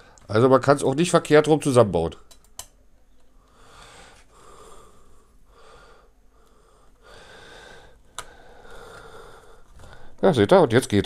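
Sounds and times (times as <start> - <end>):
man breathing: 3.4 - 10.2.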